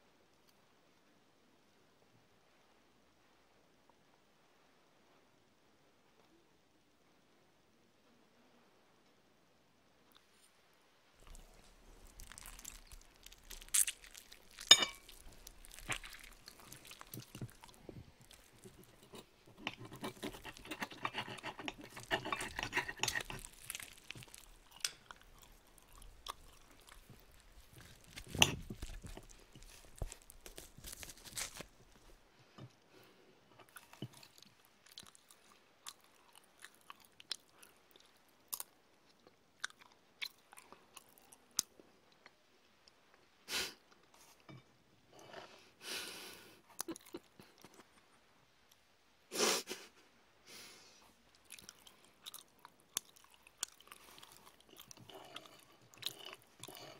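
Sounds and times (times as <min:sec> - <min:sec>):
chewing and crunching food: 0:11.2 - 0:45.6, 0:46.7 - 0:48.9, 0:51.0 - 0:56.9
cutlery clinking on a plate: 0:14.7 - 0:15.1.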